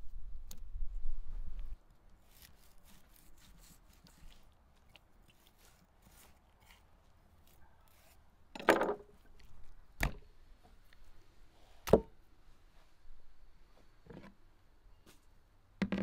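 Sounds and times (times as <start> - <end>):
knife cutting meat: 2.2 - 8.2.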